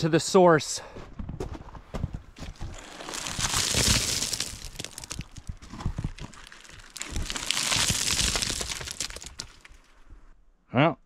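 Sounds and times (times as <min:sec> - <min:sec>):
rock crumbling and scraping: 0:01.2 - 0:10.0
rock pieces clattering down: 0:02.6 - 0:09.8.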